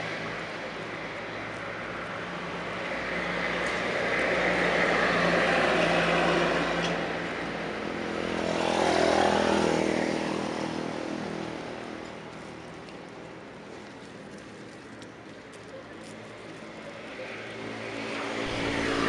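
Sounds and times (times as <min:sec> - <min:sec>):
vehicles passing on road: 0:00.0 - 0:19.0.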